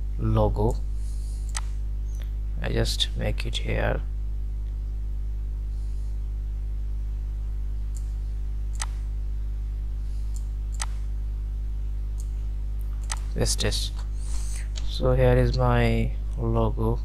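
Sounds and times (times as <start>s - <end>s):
electrical hum: 0.0s - 17.0s
computer mouse clicks: 8.7s - 9.0s, 13.0s - 13.3s.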